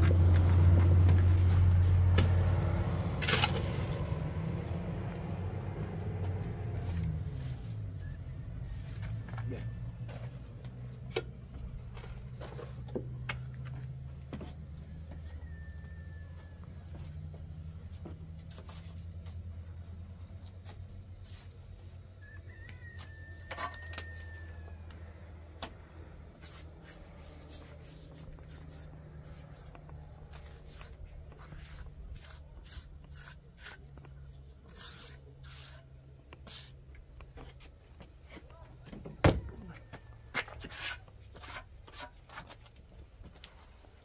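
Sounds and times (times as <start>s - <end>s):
trowel scraping wet mortar: 26.4s - 36.8s, 40.4s - 42.6s.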